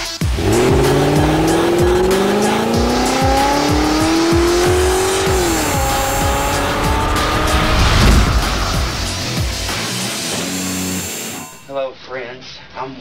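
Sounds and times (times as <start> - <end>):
electronic music with beat: 0.0 - 9.9
car engine revving: 0.0 - 11.3.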